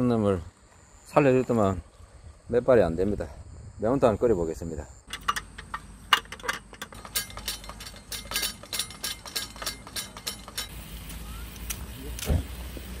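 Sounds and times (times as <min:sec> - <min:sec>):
camping table slats clicking: 0:05.1 - 0:10.7
stove fuel hissing: 0:05.2 - 0:13.0.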